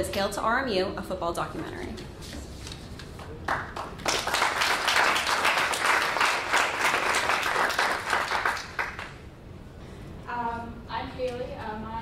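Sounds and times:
audience applauding: 3.2s - 9.2s.

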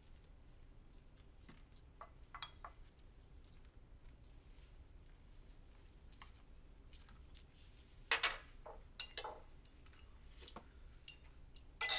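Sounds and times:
faint chewing: 0.0s - 7.9s.

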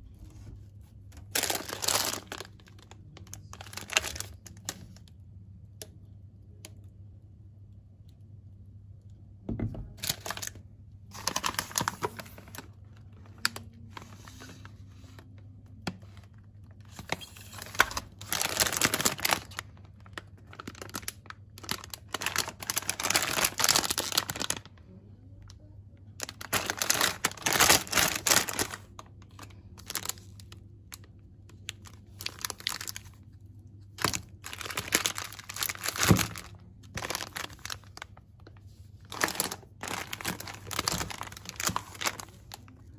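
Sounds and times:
plastic wrappers crinkling: 0.2s - 5.1s, 9.8s - 25.5s, 26.1s - 42.9s.

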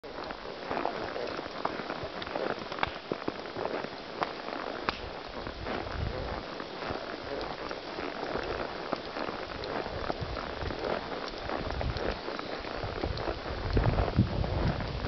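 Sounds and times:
hooves crunching dry leaves: 0.0s - 15.0s
twigs snapping: 2.8s - 3.1s, 4.9s - 5.2s.

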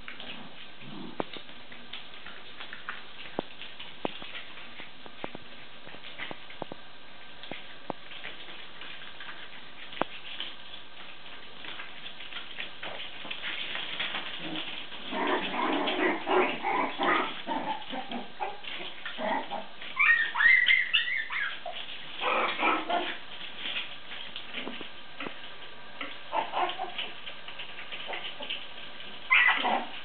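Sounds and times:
puppies play-fighting: 0.0s - 30.0s
puppy squeaky yips: 20.0s - 21.8s, 29.3s - 29.7s.

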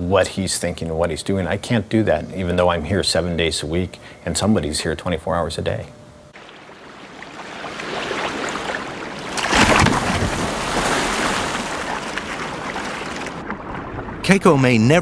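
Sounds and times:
big splash: 6.4s - 14.3s
water churning: 6.4s - 14.6s.

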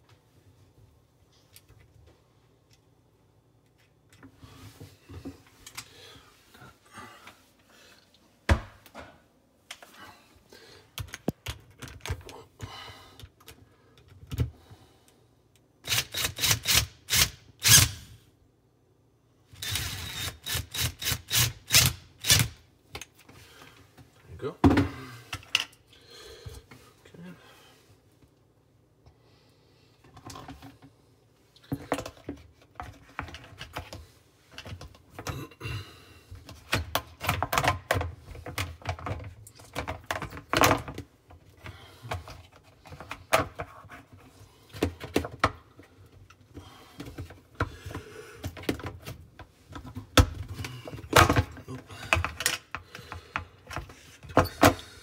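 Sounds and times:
plastic parts clicking and knocking: 11.0s - 12.3s, 36.4s - 43.8s, 47.0s - 54.8s.

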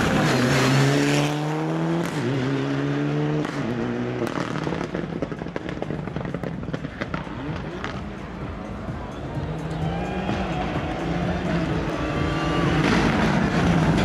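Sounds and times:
rally car engine revving: 0.0s - 14.0s
exhaust pops and crackles: 3.4s - 8.3s.

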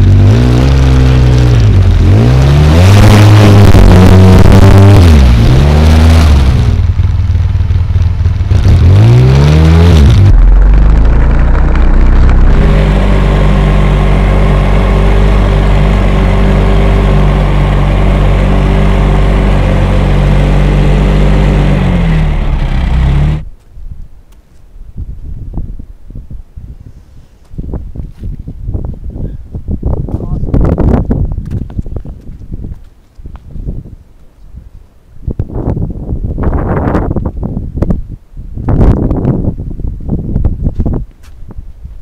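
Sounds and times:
atv engine revving: 0.0s - 23.5s.

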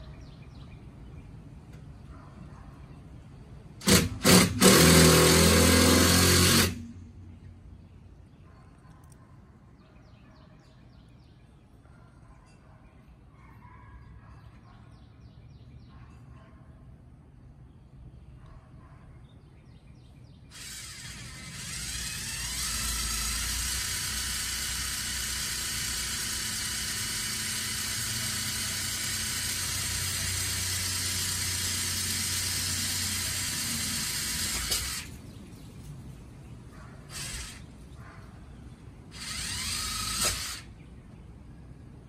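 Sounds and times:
electric power drill running: 3.8s - 7.0s, 20.5s - 35.2s, 37.1s - 37.7s, 39.1s - 40.7s.

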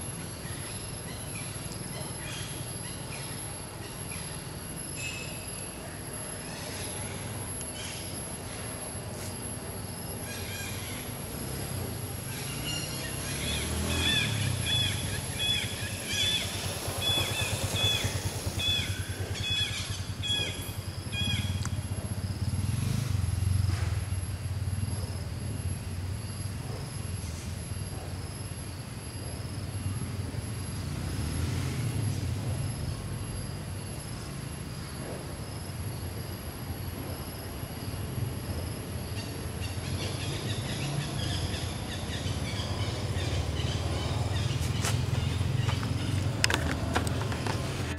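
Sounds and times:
vehicle engine rumbling past: 10.2s - 28.4s, 29.4s - 47.9s.

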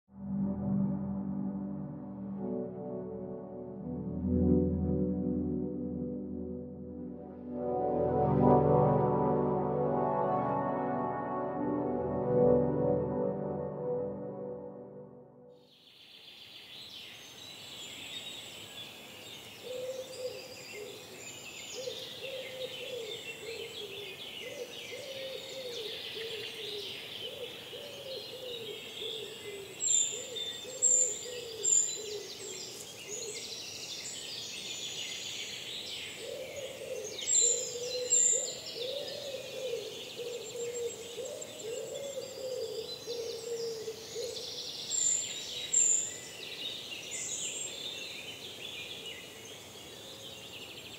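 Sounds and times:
songbirds singing: 15.8s - 50.9s.

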